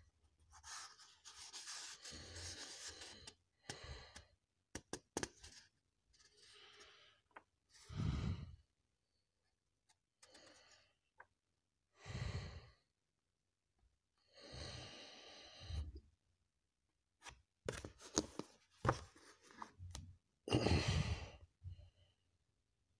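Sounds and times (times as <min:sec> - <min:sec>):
paper pages rustling: 0:17.2 - 0:19.8.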